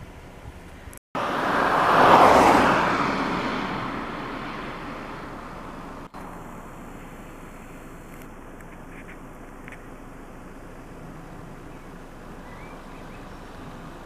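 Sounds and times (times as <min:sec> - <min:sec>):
car passing by: 0:01.2 - 0:06.4.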